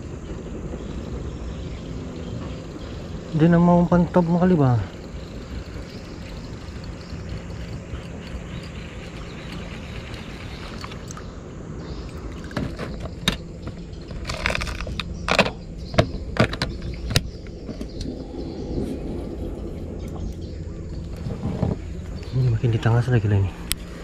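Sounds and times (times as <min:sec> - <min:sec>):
steady low rumble: 0:00.0 - 0:24.0.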